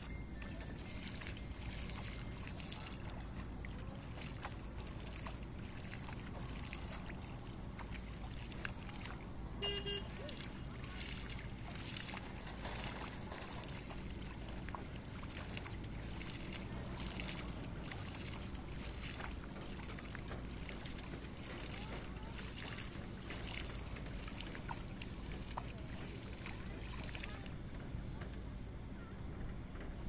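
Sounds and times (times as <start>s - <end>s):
water splashing and sloshing: 0.0s - 30.0s.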